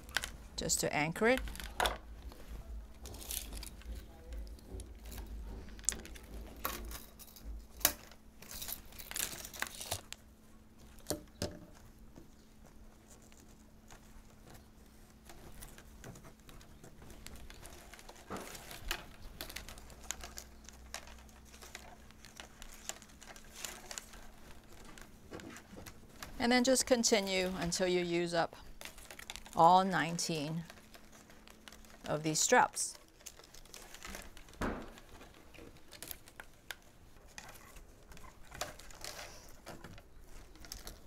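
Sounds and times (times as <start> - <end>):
plastic straps rustling: 0.0 - 41.0.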